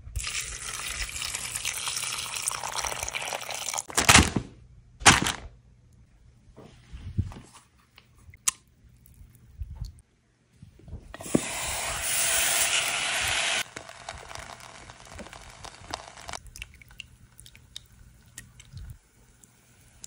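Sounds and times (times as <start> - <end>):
tortilla sizzling in a pot: 11.2 - 16.4.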